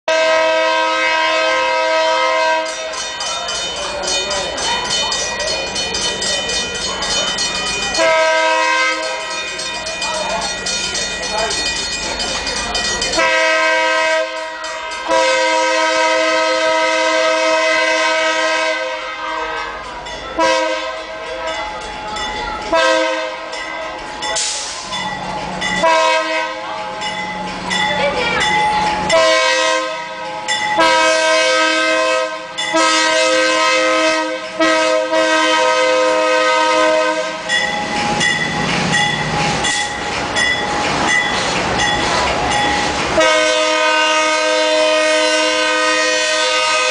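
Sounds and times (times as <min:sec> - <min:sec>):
locomotive air horn blasts: 0:00.1 - 0:02.9, 0:08.0 - 0:09.3, 0:13.2 - 0:19.8, 0:20.4 - 0:21.2, 0:22.7 - 0:23.5, 0:25.8 - 0:26.6, 0:29.1 - 0:30.2, 0:30.8 - 0:37.5, 0:43.2 - 0:46.9
train wheels on rails: 0:00.5 - 0:46.9
locomotive engine: 0:00.9 - 0:46.9.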